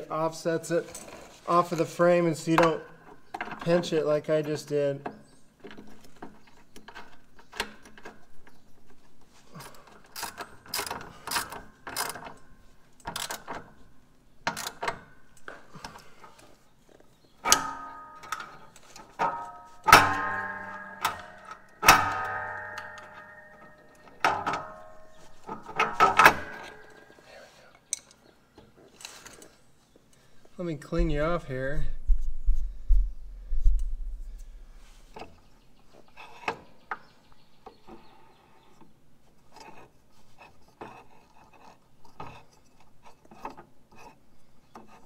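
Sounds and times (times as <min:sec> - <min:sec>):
sharp metallic clanks: 0:17.4 - 0:27.3.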